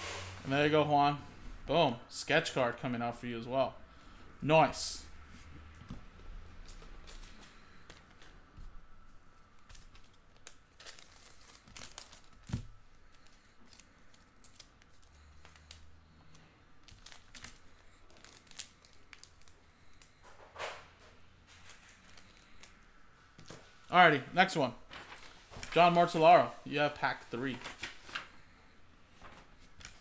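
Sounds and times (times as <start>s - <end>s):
wrappers crinkling and rustling: 9.1s - 20.3s, 21.4s - 23.9s, 24.8s - 26.5s, 27.1s - 30.0s.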